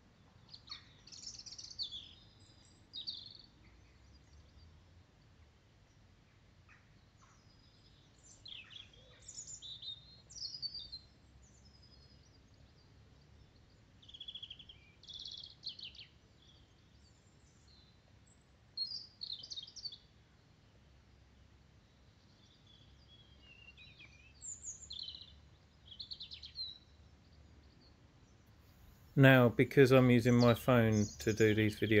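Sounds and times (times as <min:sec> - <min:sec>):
songbird chirps and trills: 0:00.0 - 0:32.0.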